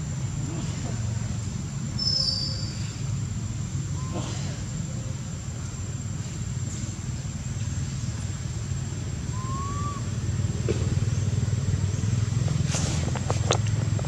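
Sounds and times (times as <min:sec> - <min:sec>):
low engine rumble: 0:00.0 - 0:14.0
rising whistled note: 0:09.3 - 0:10.1.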